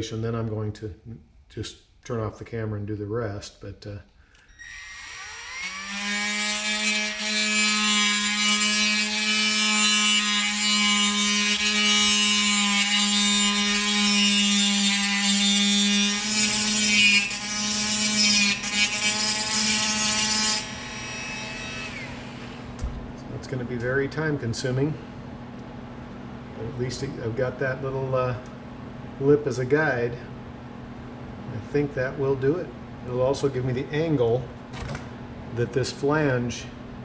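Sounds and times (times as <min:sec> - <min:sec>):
rotary tool whining: 0:04.4 - 0:22.8.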